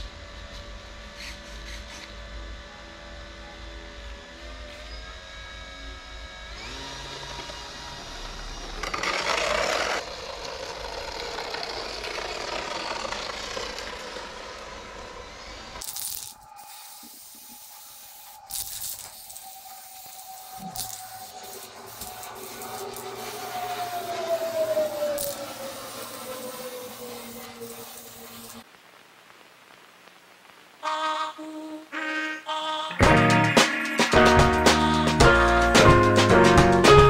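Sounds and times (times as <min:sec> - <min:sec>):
model plane motor whine: 0:01.1 - 0:16.4, 0:17.0 - 0:28.6
spray can hissing: 0:15.8 - 0:23.7, 0:24.9 - 0:28.6.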